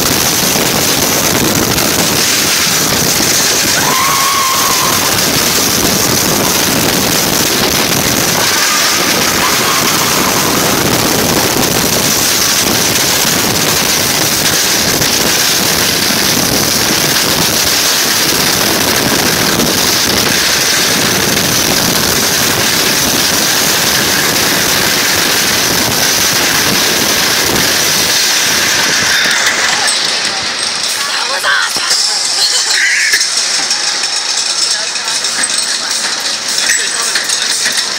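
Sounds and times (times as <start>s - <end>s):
wind rushing over microphone: 0.0s - 30.9s
roller coaster train on track: 0.0s - 37.9s.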